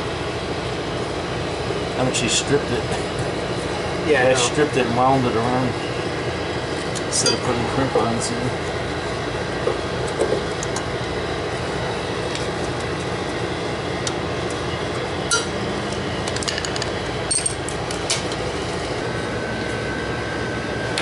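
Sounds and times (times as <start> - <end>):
machinery hum: 0.0 - 21.0.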